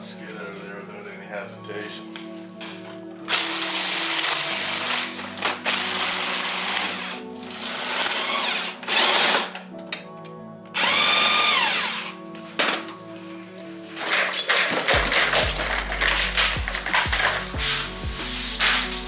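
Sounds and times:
background music: 0:00.0 - 0:19.0
cordless drill whining: 0:03.3 - 0:09.7, 0:10.7 - 0:12.2.

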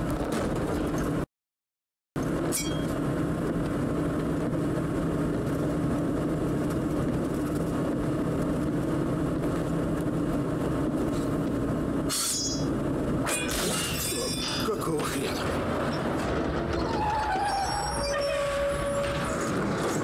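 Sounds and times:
truck engine running: 0:02.2 - 0:13.3.

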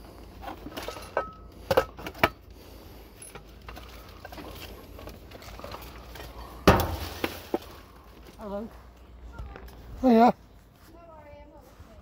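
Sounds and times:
rubbish rustling in a bin: 0:03.2 - 0:08.7.

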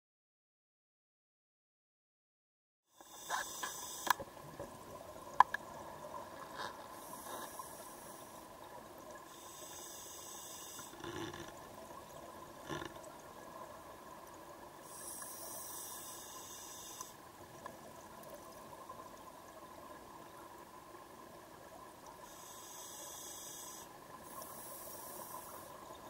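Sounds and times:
regulator hissing inhalations: 0:03.0 - 0:04.2, 0:09.3 - 0:11.1, 0:14.8 - 0:17.2, 0:22.2 - 0:25.8.

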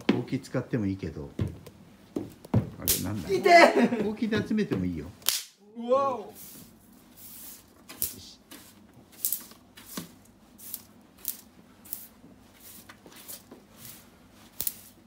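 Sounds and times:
sharp snap: 0:05.2 - 0:05.6
broom sweeping paper on wood floor: 0:06.2 - 0:15.0.

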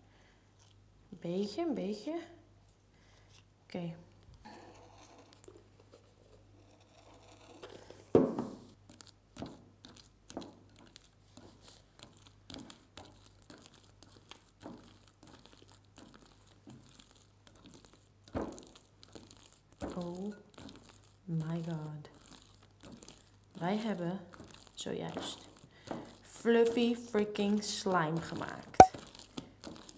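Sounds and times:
hand squishing foamy slime: 0:08.8 - 0:29.9.

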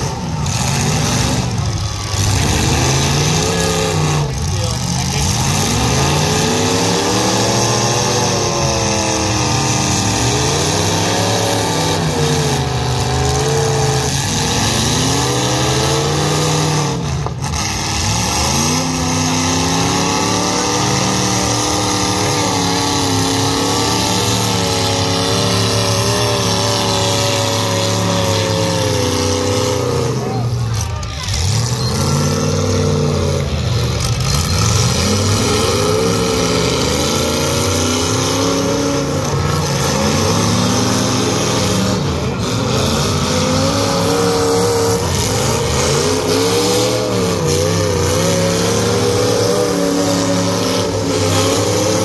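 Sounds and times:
car engines revving: 0:00.0 - 0:52.0.

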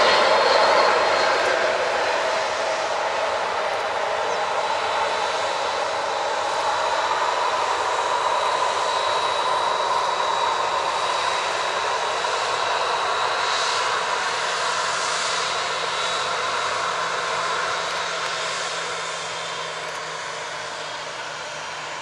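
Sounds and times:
jet engines whining: 0:00.0 - 0:22.0.

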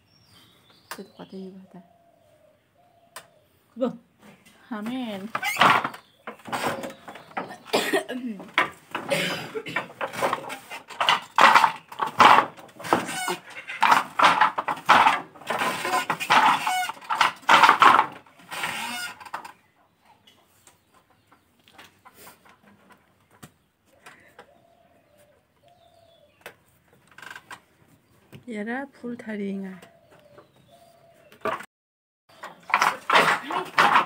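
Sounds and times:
chickens clucking and cackling: 0:12.7 - 0:14.7, 0:18.2 - 0:26.7.

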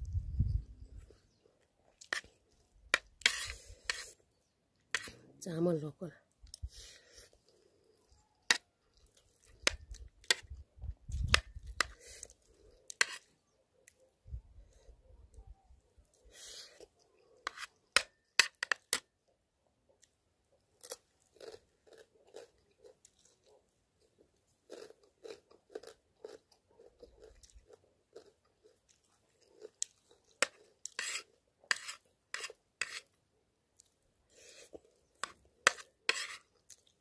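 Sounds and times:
chewing rice: 0:06.4 - 0:14.2, 0:19.8 - 0:37.0.

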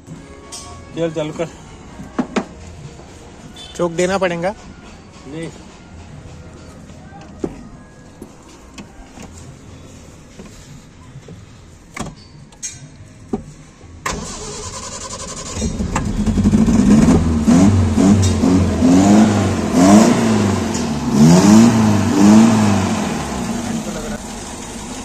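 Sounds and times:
car engine revving: 0:14.1 - 0:25.0.

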